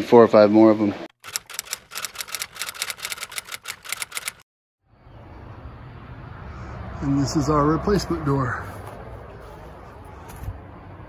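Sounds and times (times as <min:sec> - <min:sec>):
outdoor background noise: 0:00.0 - 0:11.0
typewriter key clacks: 0:01.2 - 0:04.4.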